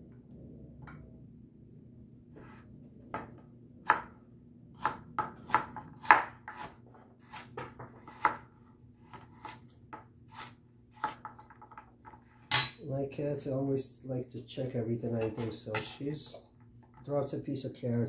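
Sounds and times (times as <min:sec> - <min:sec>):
knife slicing carrots on board: 0:04.8 - 0:11.3.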